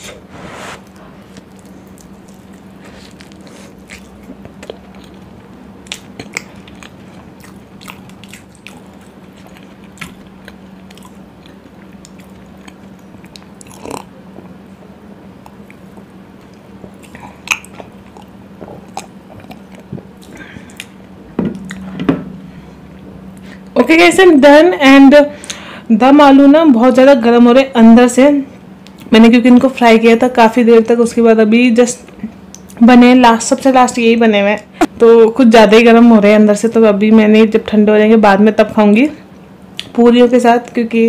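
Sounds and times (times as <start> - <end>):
steady low hum: 0.0 - 41.0
close chewing with wet mouth sounds: 1.2 - 14.5, 15.4 - 21.0.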